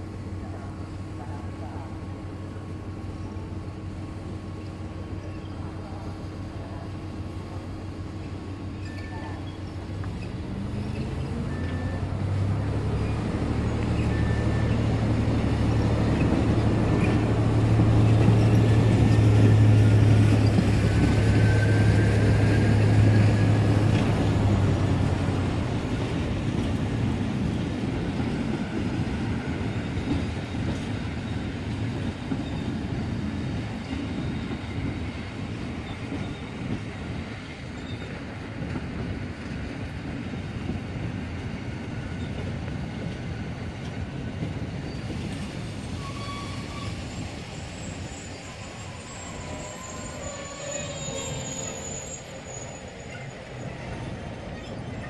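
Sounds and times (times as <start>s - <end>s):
train passing: 0.0s - 55.0s
faint wheel squeal: 8.8s - 12.1s, 12.8s - 15.0s, 44.8s - 55.0s.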